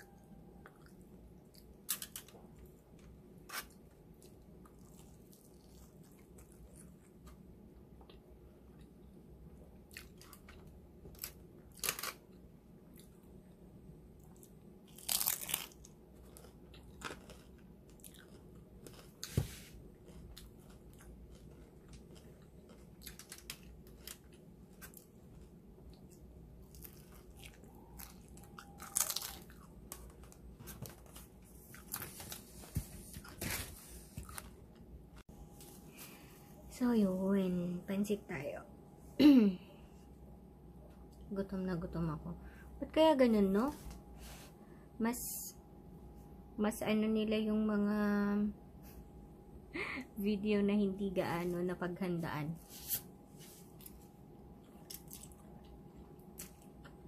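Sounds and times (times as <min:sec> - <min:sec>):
person crunching and chewing food: 0:00.1 - 0:09.0, 0:09.8 - 0:34.8, 0:52.9 - 0:57.0.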